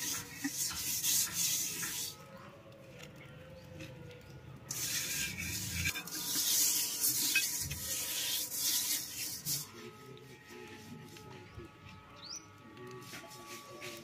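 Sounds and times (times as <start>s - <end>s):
wet mud scraping on metal pot: 0.0s - 2.3s, 4.7s - 11.6s, 12.8s - 14.0s.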